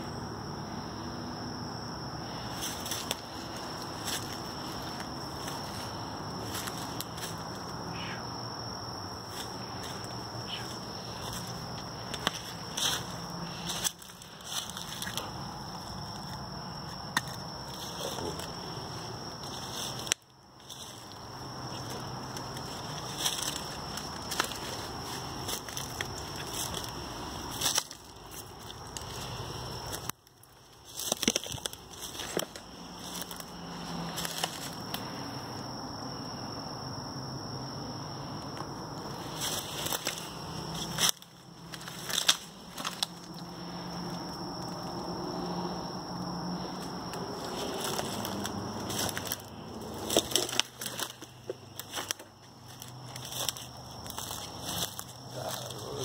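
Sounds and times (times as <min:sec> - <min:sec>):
outdoor background hum: 0:00.0 - 0:56.0
steady background noise: 0:00.0 - 0:56.0
footsteps through leaf litter: 0:02.2 - 0:07.7, 0:09.2 - 0:16.4, 0:19.4 - 0:30.1, 0:30.7 - 0:34.8, 0:39.1 - 0:43.8, 0:46.6 - 0:56.0.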